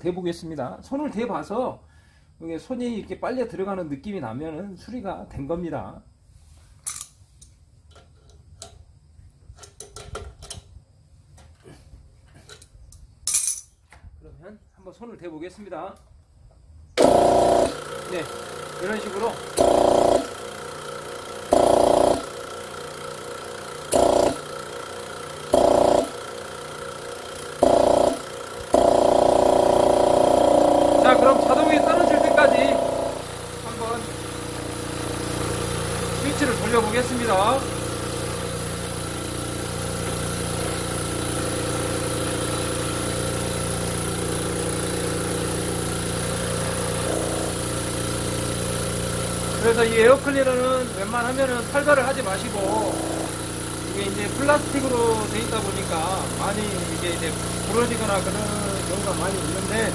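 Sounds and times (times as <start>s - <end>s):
air compressor pump running: 16.6s - 59.9s
compressor intake suction: 17.0s - 59.9s.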